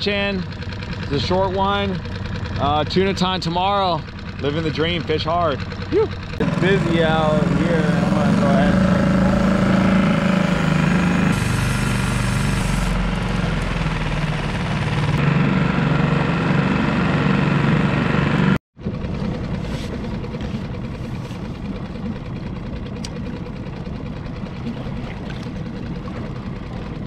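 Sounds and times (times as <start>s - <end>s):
water rushing along hull: 0.0s - 15.9s, 18.8s - 27.0s
outboard motor running: 0.0s - 27.0s.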